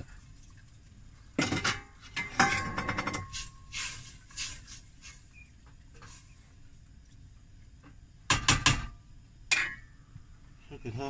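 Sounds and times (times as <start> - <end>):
steel pot and lid clanking: 1.4 - 3.7, 8.3 - 10.0
wooden spatula scraping in pot: 2.0 - 6.4.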